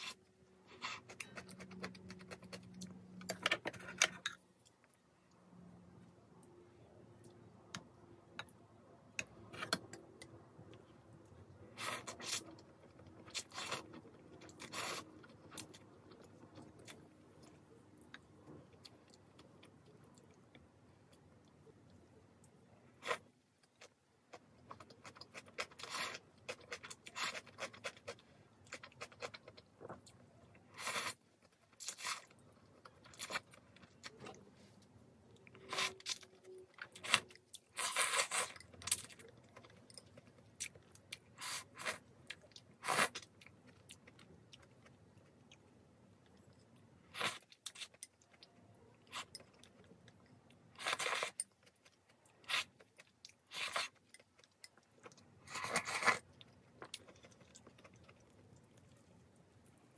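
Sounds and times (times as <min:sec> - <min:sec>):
chewing and slurping noodles: 0:50.7 - 0:59.0.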